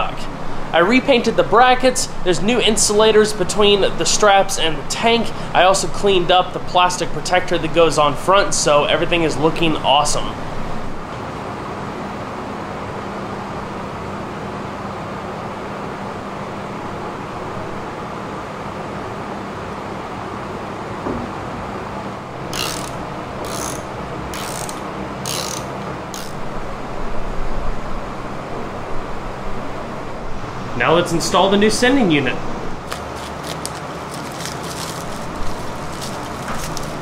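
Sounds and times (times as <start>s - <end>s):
steady background hum: 0.0s - 37.0s
ratchet wrench clicking: 22.5s - 26.4s.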